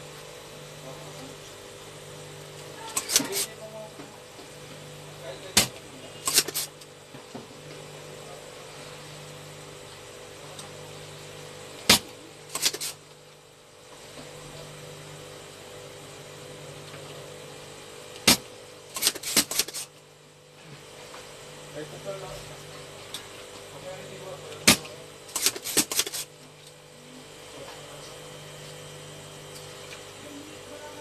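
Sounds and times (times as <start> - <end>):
desoldering pump snapping: 2.5 - 4.1, 5.5 - 7.0, 11.8 - 13.0, 18.1 - 19.9, 24.5 - 26.8.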